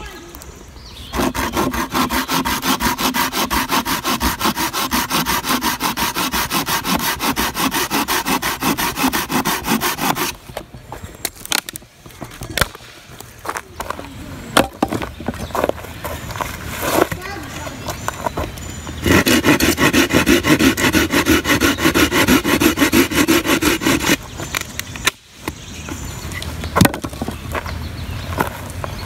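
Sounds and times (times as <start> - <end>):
hand saw cutting branch: 1.1 - 10.4, 19.0 - 24.2.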